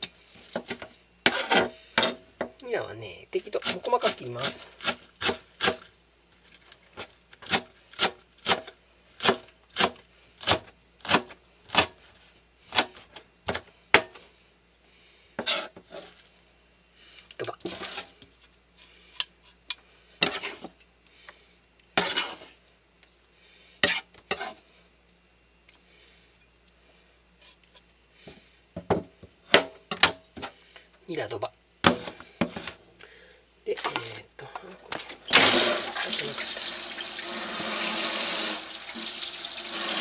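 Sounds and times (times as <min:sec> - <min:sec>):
knife blade scraping board: 0:01.3 - 0:02.2, 0:15.4 - 0:16.2, 0:20.2 - 0:20.7, 0:22.0 - 0:22.5, 0:23.8 - 0:24.6.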